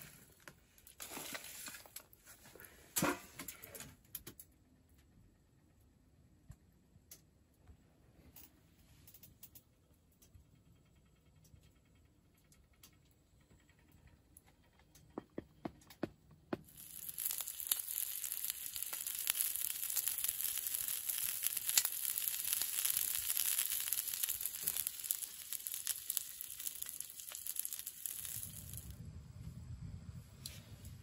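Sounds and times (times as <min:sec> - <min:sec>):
fire crackling and popping: 0:14.7 - 0:31.0.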